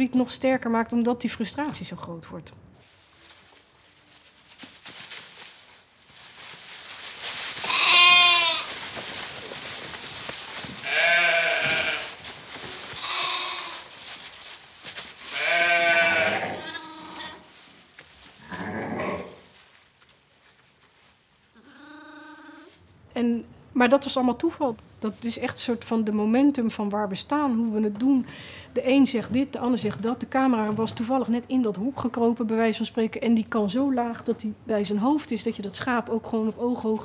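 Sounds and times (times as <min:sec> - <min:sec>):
animals rustling in straw: 0:02.8 - 0:22.9
sheep and lambs bleating: 0:07.6 - 0:08.7, 0:10.8 - 0:12.2, 0:12.9 - 0:13.9, 0:15.3 - 0:17.5, 0:18.4 - 0:19.4, 0:21.6 - 0:22.7.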